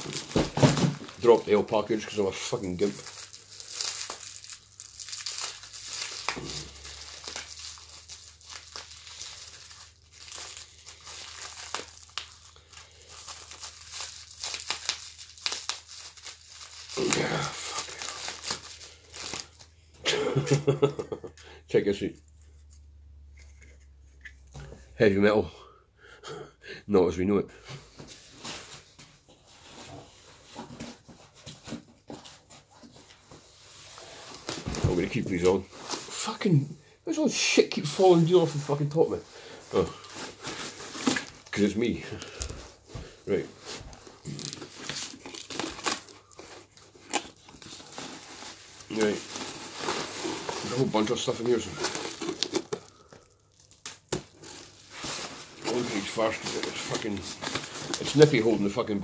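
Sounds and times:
plastic packaging crinkling: 0.0s - 19.7s, 37.8s - 59.0s.

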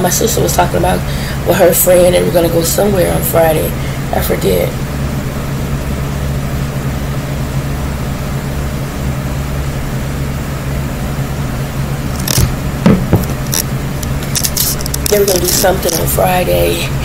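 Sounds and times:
low mechanical hum: 0.0s - 17.0s
short sharp knock: 12.4s - 13.4s.

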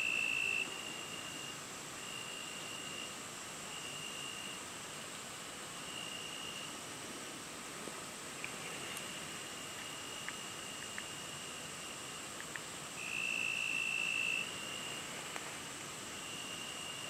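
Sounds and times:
insects trilling: 0.0s - 4.7s, 5.8s - 6.7s, 8.4s - 17.0s
loud insect trill: 0.0s - 4.7s, 5.8s - 6.8s, 8.6s - 12.4s, 13.0s - 17.0s
faint ticks: 9.7s - 11.2s, 12.4s - 12.7s.

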